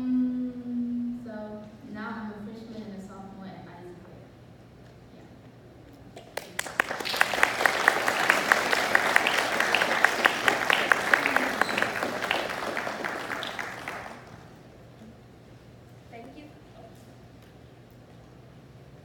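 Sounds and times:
loud sharp claps close by: 0:06.2 - 0:14.5
audience applauding: 0:06.3 - 0:14.6.

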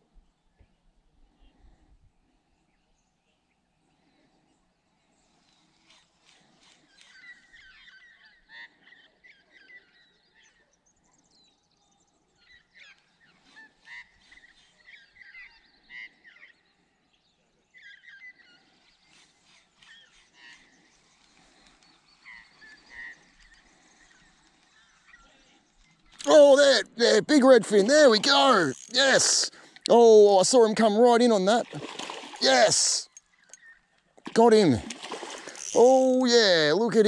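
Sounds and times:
birds calling: 0:26.0 - 0:37.0.

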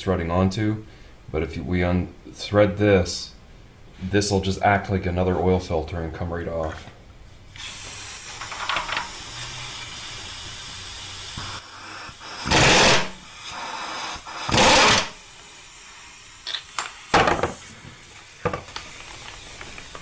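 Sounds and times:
air hissing: 0:07.5 - 0:20.0
pneumatic impact wrench hammering: 0:07.6 - 0:13.2, 0:14.2 - 0:15.2.

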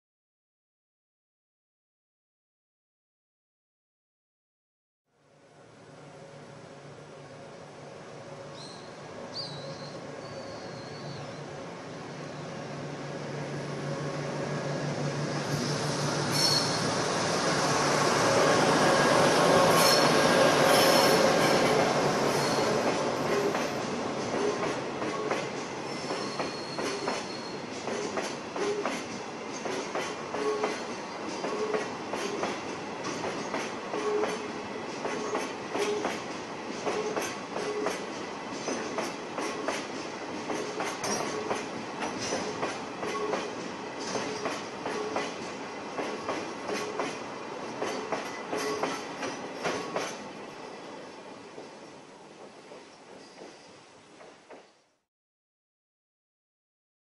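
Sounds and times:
diesel locomotive passing: 0:05.4 - 0:54.6
wheel clacks over rail joints: 0:23.3 - 0:50.2
wheel squeals: 0:25.8 - 0:27.7.

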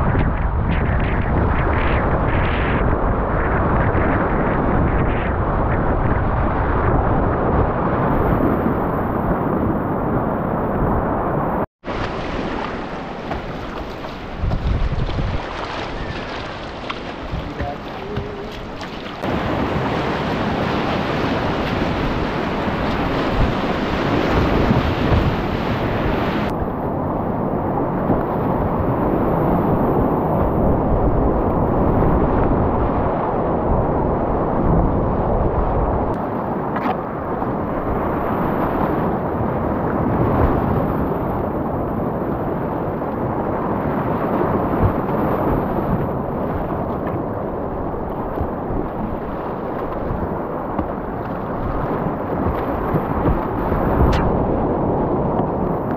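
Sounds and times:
whitewater rapids rushing: 0:11.9 - 0:26.5.

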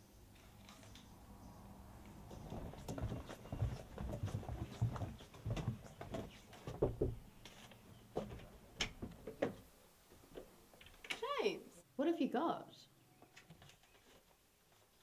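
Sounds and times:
footsteps on wooden decking: 0:02.0 - 0:10.5.

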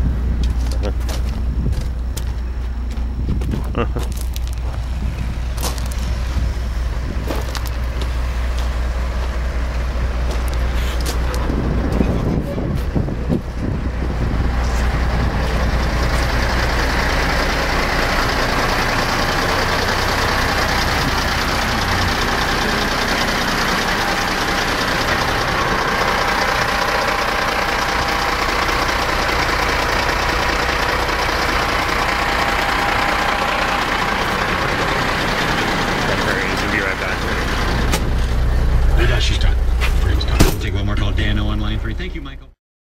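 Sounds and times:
diesel truck engine rumbling: 0:00.0 - 0:42.6.

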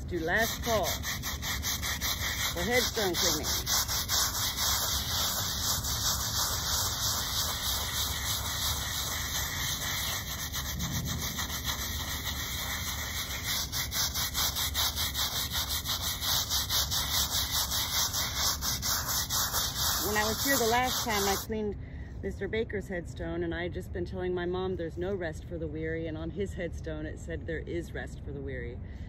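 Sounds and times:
scrub brush scrubbing stone: 0:00.0 - 0:21.5.

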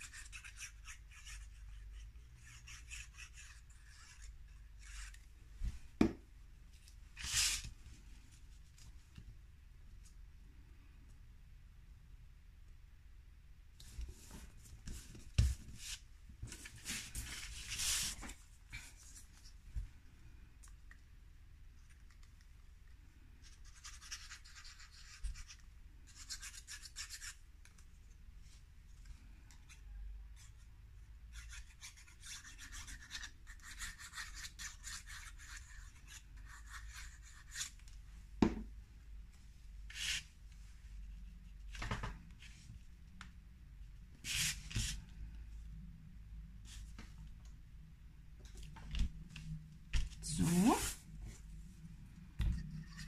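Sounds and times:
glue tip scratching on paper: 0:00.0 - 0:05.2, 0:23.4 - 0:27.4, 0:31.3 - 0:37.7.

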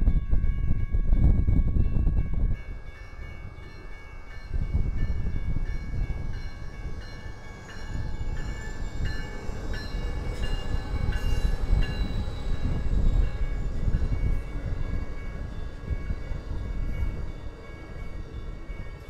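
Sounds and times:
train rumbling past: 0:00.0 - 0:19.0
crossing bell dinging: 0:00.1 - 0:19.0.

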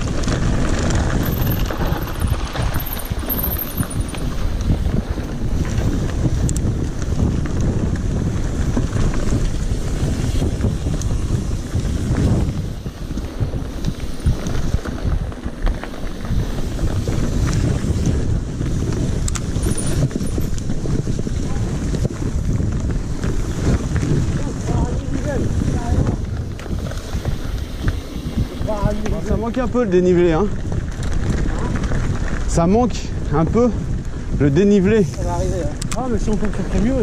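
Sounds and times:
bike knocks and rattles: 0:00.0 - 0:32.8
tyres rumbling on dirt trail: 0:00.0 - 0:37.0
wind buffeting microphone: 0:00.0 - 0:37.0.

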